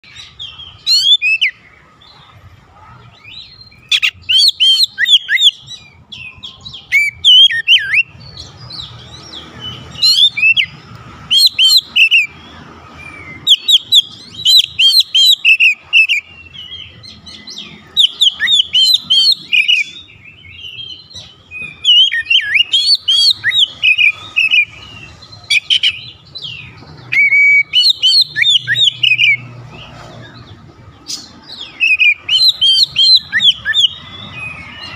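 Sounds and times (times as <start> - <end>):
bird singing whistled phrases: 3.7 - 8.2, 13.0 - 29.5, 31.6 - 34.9.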